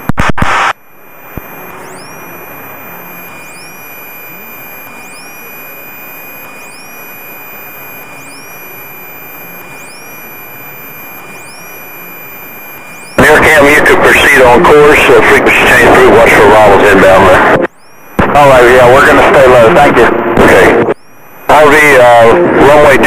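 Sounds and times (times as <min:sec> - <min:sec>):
faint steady high tone: 0:01.1 - 0:19.9
rising electronic chirp: 0:01.4 - 0:14.9, 0:17.7 - 0:18.2.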